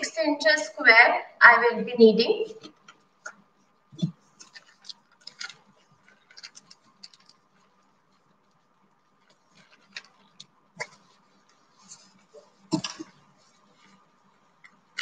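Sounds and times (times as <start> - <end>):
plastic bag crinkling: 4.4 - 11.2.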